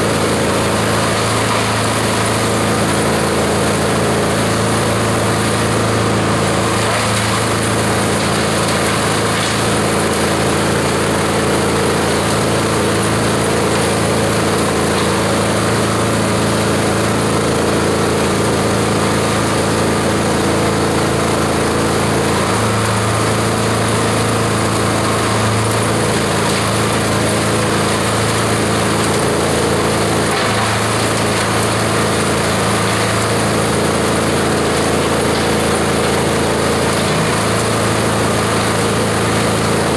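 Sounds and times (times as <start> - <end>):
shredder shredding plants: 0.0 - 39.9.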